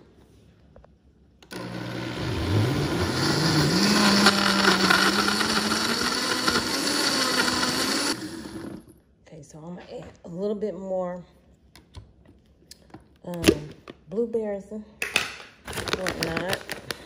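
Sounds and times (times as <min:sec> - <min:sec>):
blender motor whining: 0:01.5 - 0:08.9.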